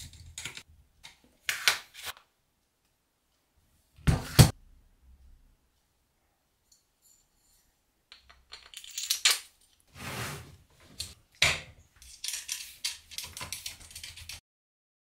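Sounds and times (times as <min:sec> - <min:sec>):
small metal parts clinking: 0:06.7 - 0:09.8, 0:12.0 - 0:14.4.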